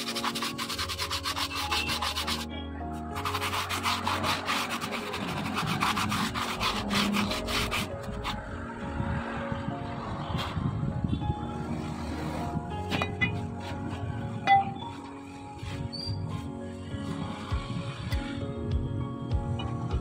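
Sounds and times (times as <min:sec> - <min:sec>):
cloth scrubbing brake plate: 0:00.0 - 0:02.5, 0:03.1 - 0:08.6, 0:11.7 - 0:17.8.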